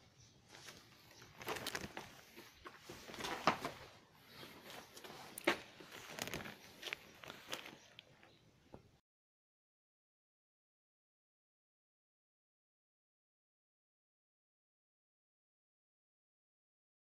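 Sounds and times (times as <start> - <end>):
rustling and scuffing: 0.4 - 8.4.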